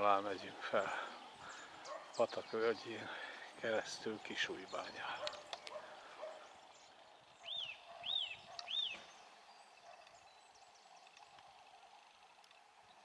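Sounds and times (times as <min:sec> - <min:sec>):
songbird whistled notes: 0:07.4 - 0:09.1.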